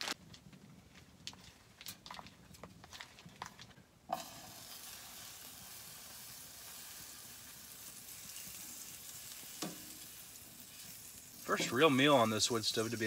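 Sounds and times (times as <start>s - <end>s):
batter sizzling in a pan: 4.1s - 13.0s.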